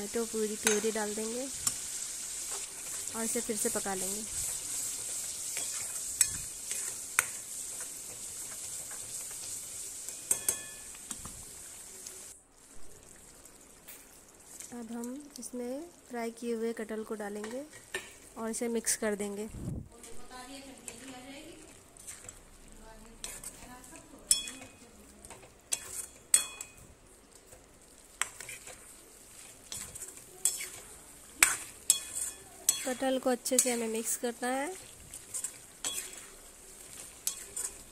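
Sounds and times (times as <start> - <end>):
paste sizzling in oil: 0.0 - 37.9
metal spoon clinking on pan: 0.6 - 1.0, 5.5 - 7.9, 10.1 - 11.0, 24.2 - 26.9, 29.7 - 30.8, 31.4 - 34.0, 35.3 - 36.3, 36.9 - 37.8
ladle stirring thick gravy: 4.3 - 10.4, 20.6 - 37.9
ladle clinking on metal pan: 24.3 - 24.8.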